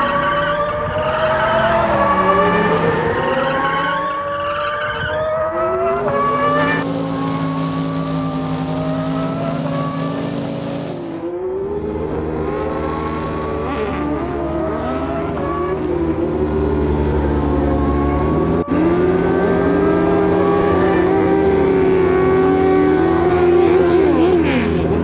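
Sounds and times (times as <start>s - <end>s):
race car engines revving: 0.0s - 25.0s.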